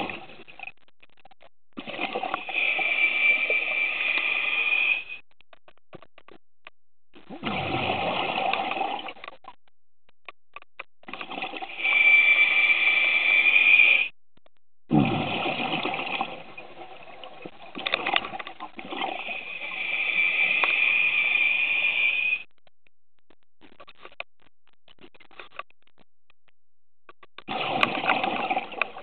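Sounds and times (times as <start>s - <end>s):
exhaled bubbles gurgling: 0.0s - 0.6s, 1.8s - 5.1s, 7.1s - 9.3s, 11.0s - 14.1s, 14.9s - 22.4s, 27.4s - 29.0s
hissing regulator inhalation: 2.5s - 5.2s, 11.7s - 14.1s, 19.1s - 22.4s.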